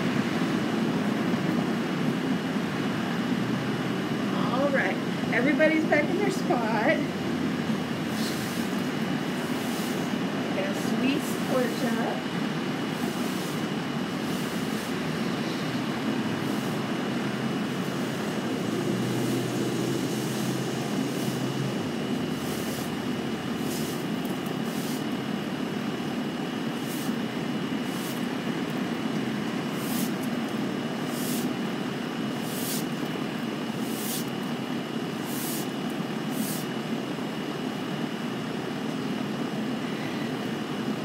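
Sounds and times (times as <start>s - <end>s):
distant road traffic hum: 0.0s - 41.0s
short high hisses: 24.7s - 25.0s, 32.4s - 32.9s, 35.3s - 35.7s, 36.3s - 36.7s.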